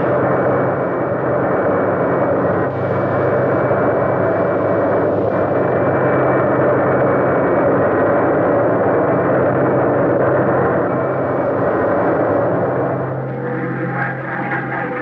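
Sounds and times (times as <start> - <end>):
jet engine roar: 9.5 - 15.0
thin high whine: 10.7 - 15.0.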